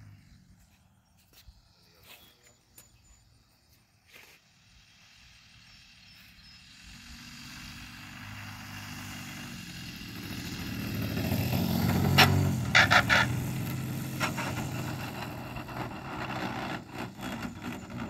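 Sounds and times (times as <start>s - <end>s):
model plane engine: 3.6s - 18.0s.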